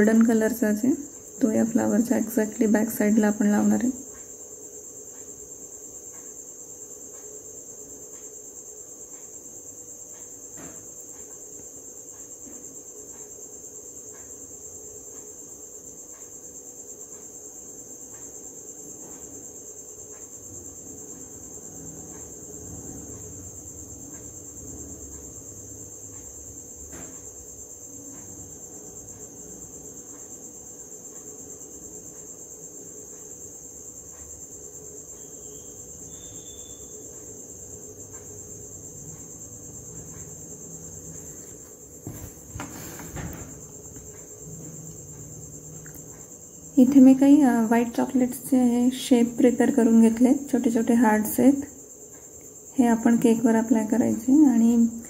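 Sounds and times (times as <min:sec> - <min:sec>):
faint ticks: 0:03.8 - 0:41.9, 0:42.6 - 0:46.5.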